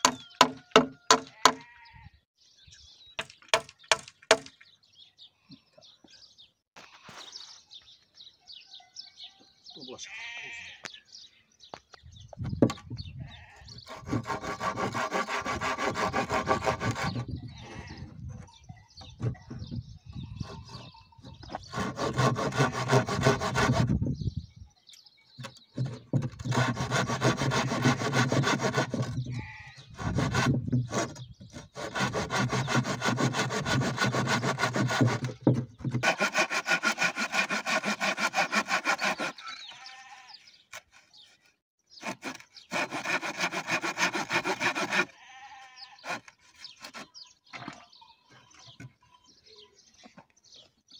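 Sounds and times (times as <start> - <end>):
hand saw cutting wood: 3.2 - 4.5, 13.8 - 18.5, 19.1 - 19.8, 20.4 - 24.1, 25.4 - 47.8.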